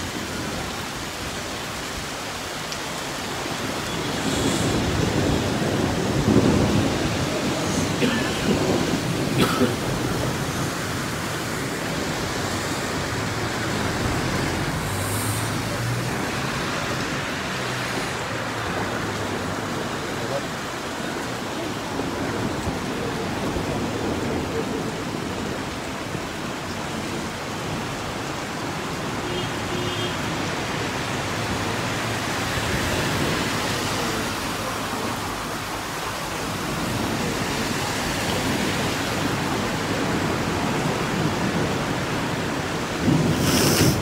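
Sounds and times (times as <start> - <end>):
heavy rain hissing: 0.0 - 44.0
sharp thunder crack: 43.0 - 44.0.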